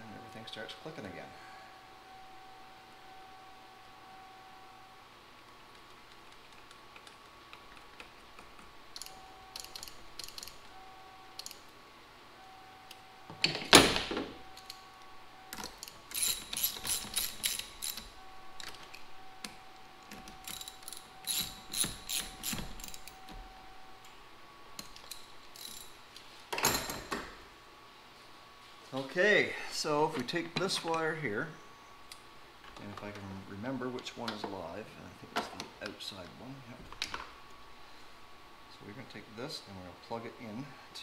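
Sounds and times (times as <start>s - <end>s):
hand ratchet clicking: 8.9s - 10.6s, 15.6s - 19.0s, 20.1s - 23.2s.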